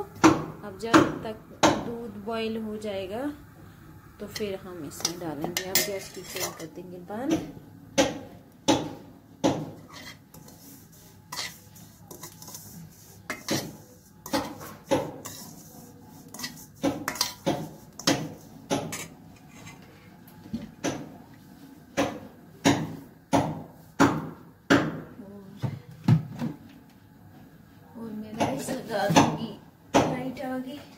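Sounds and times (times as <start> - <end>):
spoon striking a cooking pan: 16.4 - 19.1.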